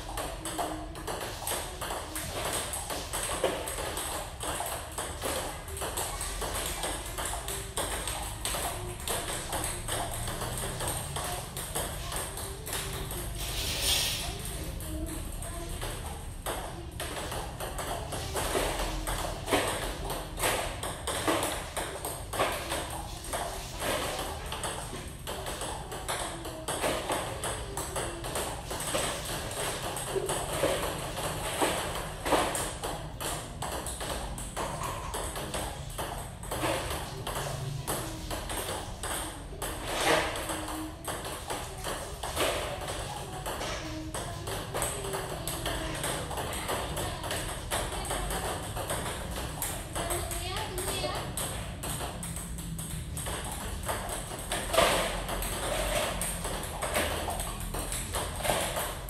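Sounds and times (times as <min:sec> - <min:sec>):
ping-pong ball clicks: 0:00.0 - 0:59.0.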